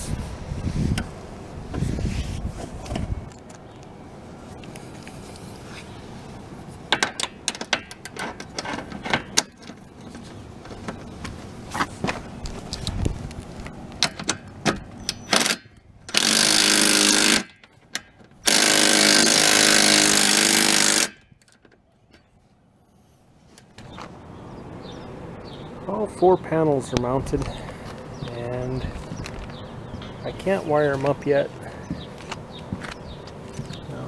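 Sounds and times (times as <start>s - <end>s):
power driver running: 18.5s - 21.2s.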